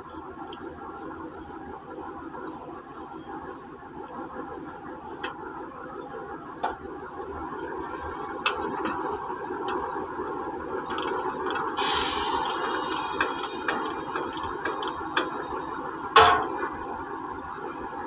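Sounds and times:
work yard noise: 0:00.0 - 0:18.0
short hiss: 0:11.8 - 0:13.1
sharp metallic clank: 0:16.2 - 0:16.7.

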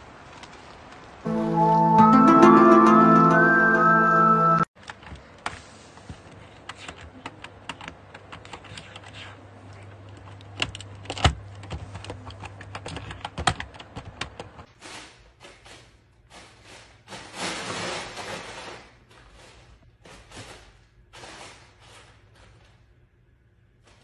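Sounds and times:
keyboard keys clicking: 0:06.7 - 0:09.2, 0:10.0 - 0:14.7.

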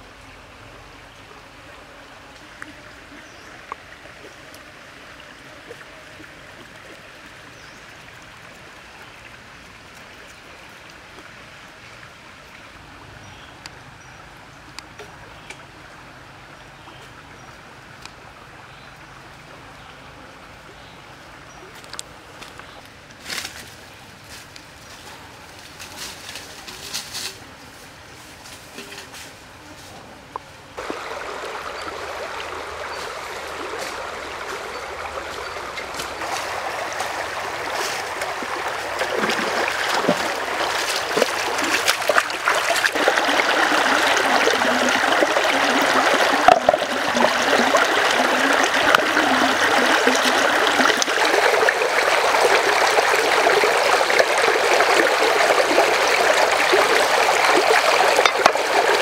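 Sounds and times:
stream rushing and splashing: 0:00.0 - 0:24.3, 0:30.6 - 0:59.0
footsteps through undergrowth: 0:22.4 - 0:30.0, 0:33.0 - 0:42.9
person wading through water: 0:30.8 - 0:59.0.

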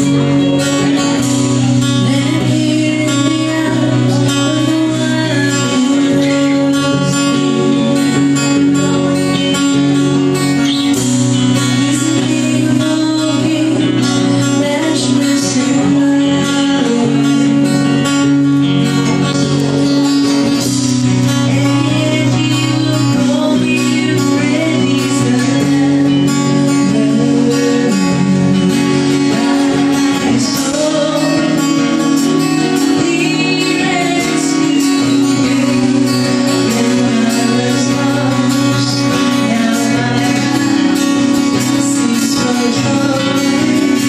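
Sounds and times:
acoustic guitars playing: 0:00.0 - 0:44.0
woman singing: 0:00.0 - 0:44.0.

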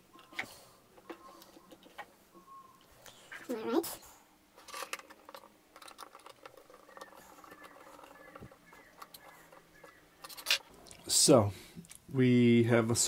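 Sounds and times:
hands handling plastic housing: 0:04.6 - 0:10.7.

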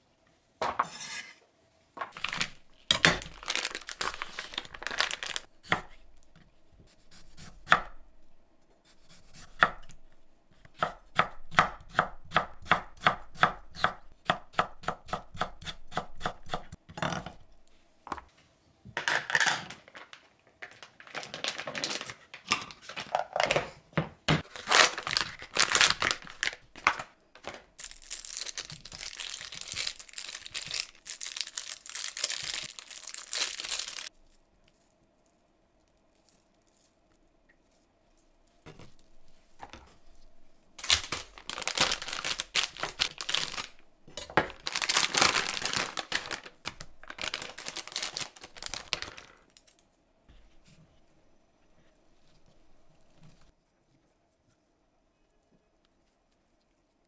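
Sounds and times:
plastic wrappers crinkling: 0:02.1 - 0:05.5, 0:19.3 - 0:23.2, 0:24.4 - 0:35.0, 0:40.8 - 0:49.8.

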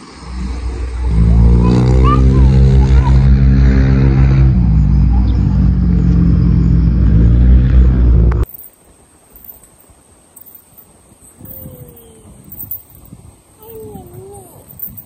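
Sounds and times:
motor engine running: 0:00.3 - 0:08.5.

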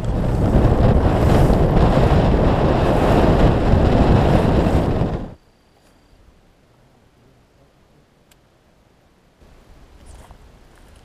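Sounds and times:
choppy water against boat hull: 0:00.0 - 0:05.4
wind buffeting microphone: 0:00.0 - 0:05.4.

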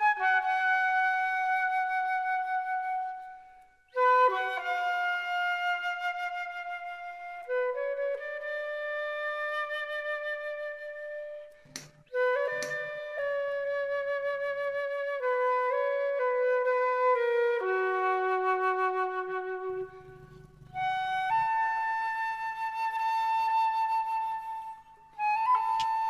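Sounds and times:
slow flute melody: 0:00.0 - 0:26.0
brief clicks: 0:25.6 - 0:26.0.

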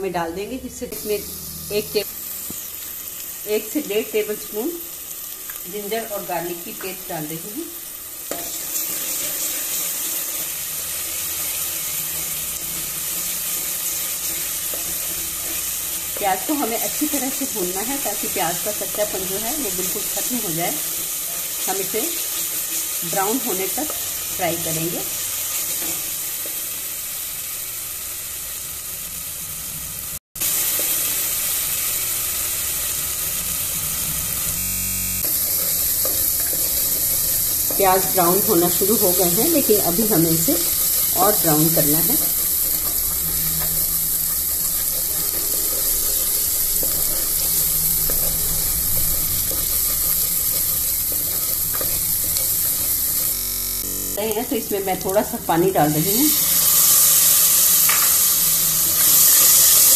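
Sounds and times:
paste sizzling in hot oil: 0:00.9 - 0:59.9
wooden spatula stirring: 0:35.3 - 0:53.4.

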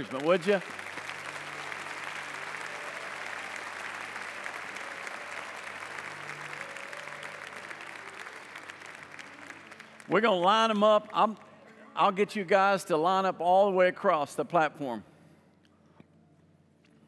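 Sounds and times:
congregation applauding: 0:00.0 - 0:11.3.

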